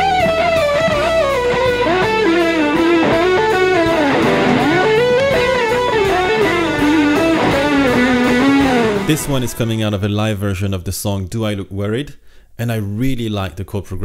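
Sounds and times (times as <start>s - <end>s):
slide electric guitar lead: 0.0s - 10.1s
band backing: 0.0s - 10.8s.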